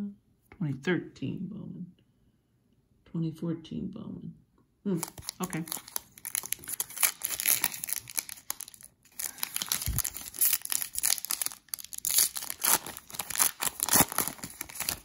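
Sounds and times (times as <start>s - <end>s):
foil wrapper crinkling and tearing: 5.0s - 15.0s.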